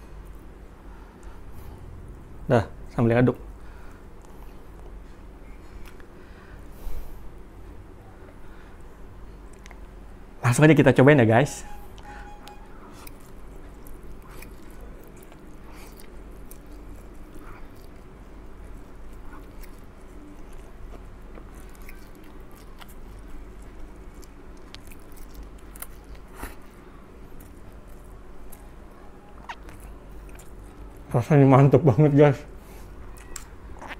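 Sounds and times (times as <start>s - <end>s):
faint low hum: 0.0s - 33.9s
chewing and mouth noises: 3.8s - 6.2s, 9.3s - 10.0s, 11.9s - 31.2s, 32.6s - 33.9s.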